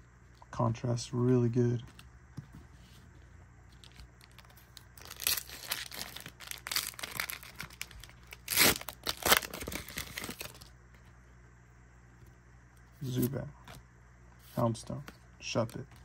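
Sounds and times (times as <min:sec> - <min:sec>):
plastic wrapper crinkling and tearing: 0:03.8 - 0:10.7.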